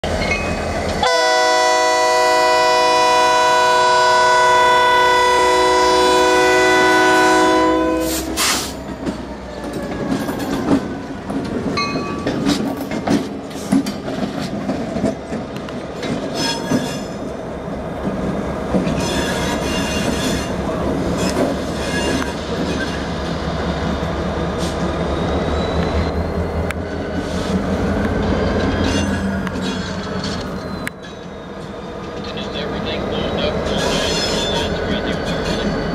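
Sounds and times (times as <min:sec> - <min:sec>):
diesel locomotive engines running: 0:00.0 - 0:35.9
locomotive air horn blast: 0:01.0 - 0:08.8
train wheels clicking over rail joints: 0:08.3 - 0:25.0
train wheels squealing: 0:16.3 - 0:17.2, 0:18.9 - 0:27.6, 0:28.2 - 0:32.4, 0:33.3 - 0:35.9.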